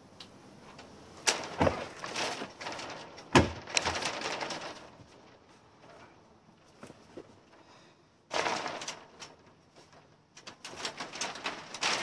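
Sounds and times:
rattling and scraping: 0.7 - 7.7, 8.3 - 12.0.

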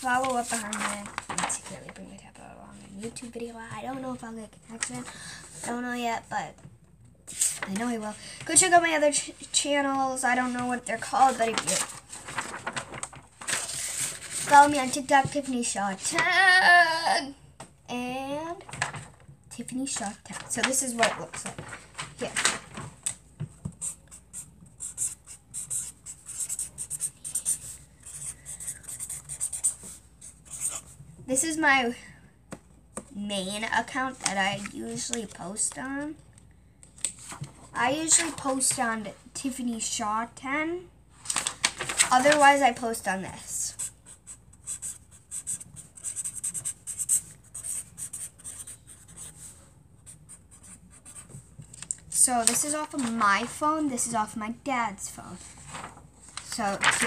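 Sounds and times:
pencil scratching on paper: 23.8 - 31.0, 43.7 - 51.4.

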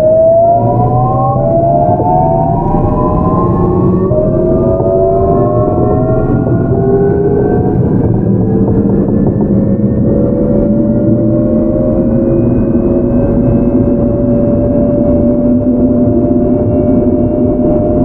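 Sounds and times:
train running gear rumble: 5.6 - 17.8.

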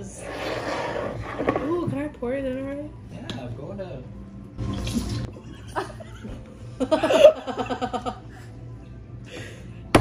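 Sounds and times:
people laughing loudly: 5.5 - 8.5.

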